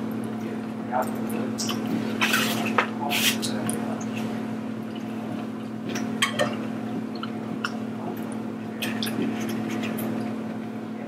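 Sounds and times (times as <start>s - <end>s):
steady low hum: 0.0s - 11.0s
wet chewing and mouth smacks: 4.8s - 10.4s.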